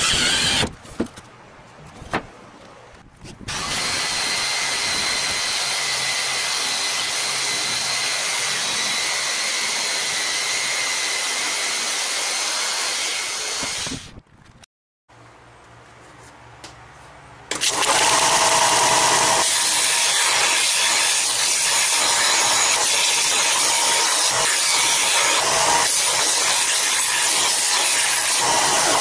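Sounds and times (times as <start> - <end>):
electric drill whining: 0.0 - 0.7, 3.5 - 14.1, 17.5 - 29.0.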